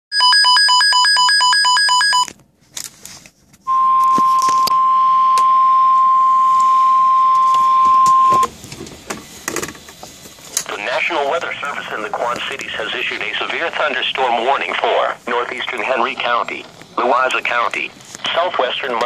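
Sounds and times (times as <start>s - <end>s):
rapid pulsed beeping: 3.7s - 8.5s
steady alarm tone: 3.7s - 8.6s.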